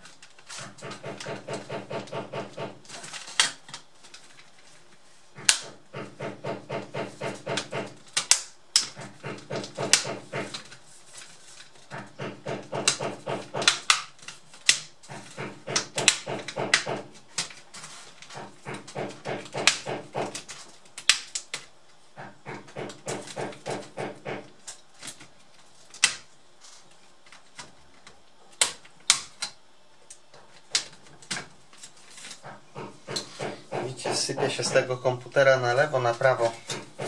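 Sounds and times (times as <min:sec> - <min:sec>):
rapid dull knocking: 0:00.6 - 0:02.9, 0:05.4 - 0:08.1, 0:08.9 - 0:10.7, 0:11.9 - 0:14.0, 0:15.0 - 0:17.2, 0:18.3 - 0:20.5, 0:22.2 - 0:24.6, 0:32.4 - 0:37.0.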